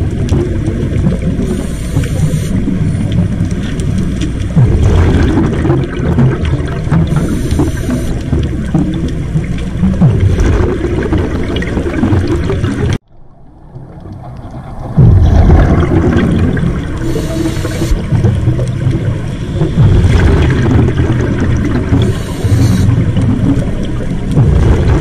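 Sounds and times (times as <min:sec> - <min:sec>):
underwater bubbling exhalations: 0:00.0 - 0:13.0, 0:13.9 - 0:25.0
inhalation hiss: 0:17.1 - 0:17.9.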